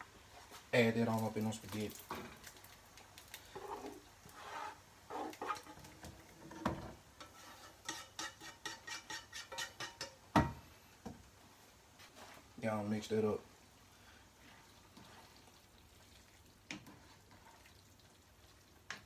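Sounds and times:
utensil scraping frying pan: 3.5s - 10.2s, 16.7s - 17.8s.

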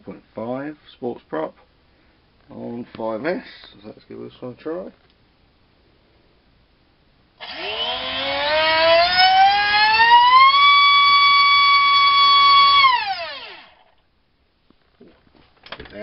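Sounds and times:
electric motor whining: 7.4s - 13.9s.

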